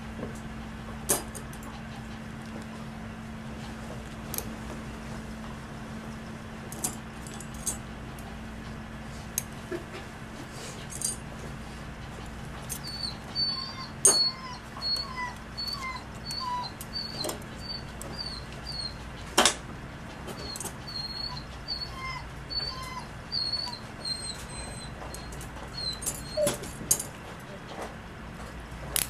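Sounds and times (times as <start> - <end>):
dog whimpering: 12.8 - 19.1, 20.3 - 26.8.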